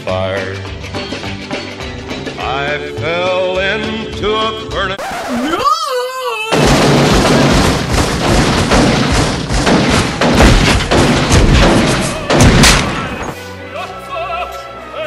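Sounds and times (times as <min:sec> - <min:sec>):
rapid gunshots: 0:06.5 - 0:13.0.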